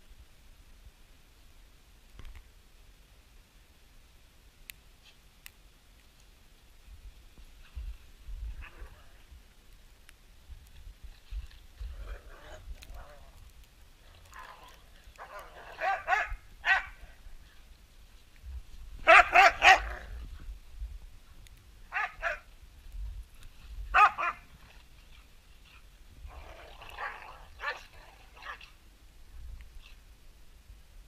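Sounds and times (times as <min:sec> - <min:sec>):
dogs barking: 0:15.1 - 0:17.0, 0:19.0 - 0:20.1, 0:21.9 - 0:22.4, 0:23.9 - 0:24.4.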